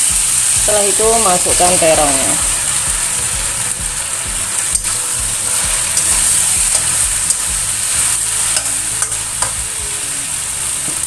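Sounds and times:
food sizzling in a wok: 0.0s - 11.0s
metal spatula scraping a pan: 2.5s - 9.8s.

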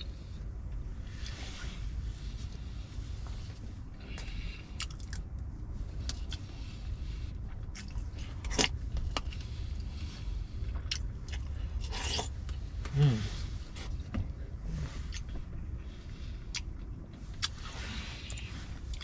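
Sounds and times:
steady low rumble: 0.0s - 19.0s
chewing: 4.1s - 5.3s, 7.5s - 9.5s, 10.7s - 12.6s, 16.4s - 19.0s.

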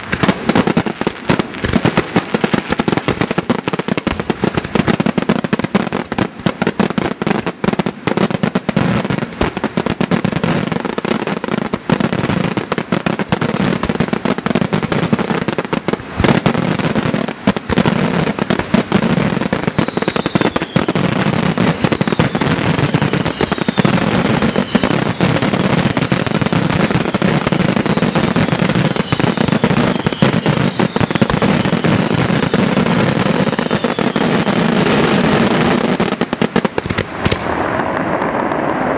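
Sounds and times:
falling firework whistles: 8.7s - 38.9s.

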